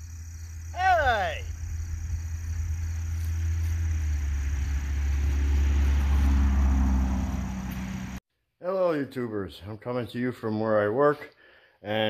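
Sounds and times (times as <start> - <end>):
steady low rumble: 1.5 - 6.3
car passing by: 2.8 - 8.2.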